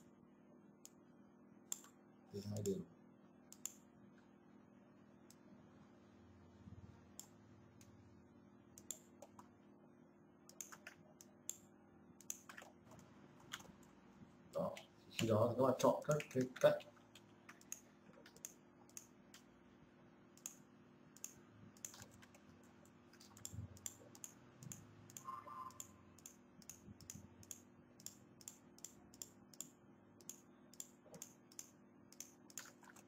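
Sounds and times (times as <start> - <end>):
faint steady hum: 0.0 - 33.0
computer mouse clicks: 1.7 - 2.0, 3.5 - 3.9, 7.2 - 7.9, 8.8 - 9.5, 10.5 - 13.9, 16.0 - 19.5, 20.4 - 20.6, 21.2 - 22.4, 23.1 - 33.0
keyboard clicks: 8.8 - 9.5, 10.5 - 11.6, 12.2 - 13.9, 16.0 - 19.5, 21.2 - 22.4, 23.1 - 33.0.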